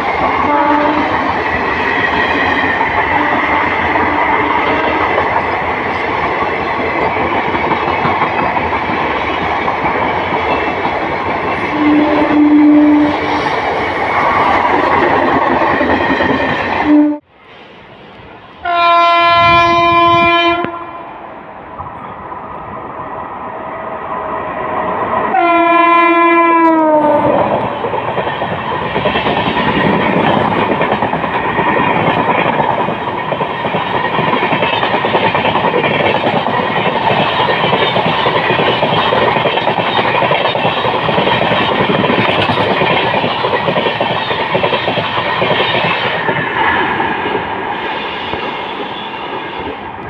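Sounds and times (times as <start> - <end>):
train coaches rushing and clacking: 0.0 - 50.0
locomotive horn: 0.4 - 1.1, 11.7 - 13.5, 16.8 - 17.3, 18.6 - 21.1, 25.3 - 27.4.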